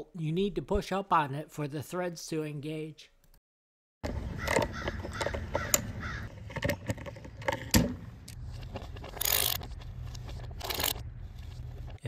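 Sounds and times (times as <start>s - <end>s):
crows cawing: 4.4s - 6.4s
ratchet clicking on bolts: 9.2s - 9.6s, 10.6s - 11.0s.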